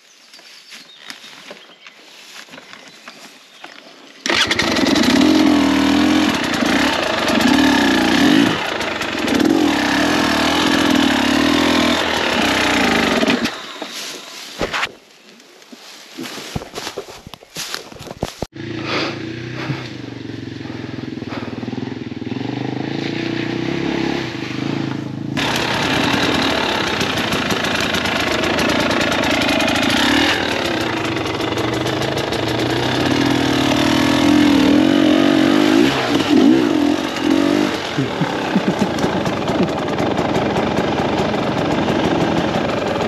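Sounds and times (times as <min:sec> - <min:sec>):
motorcycle engine revving: 0:04.2 - 0:14.0, 0:18.3 - 0:43.0.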